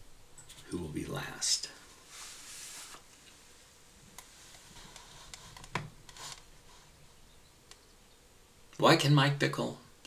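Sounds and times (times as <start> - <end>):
short soft hiss: 1.8 - 8.0.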